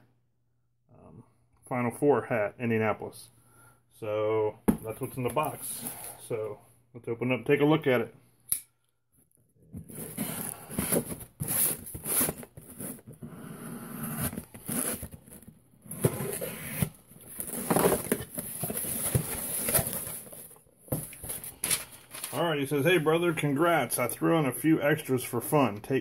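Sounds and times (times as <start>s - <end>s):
cardboard scraping and rustling: 9.8s - 22.4s.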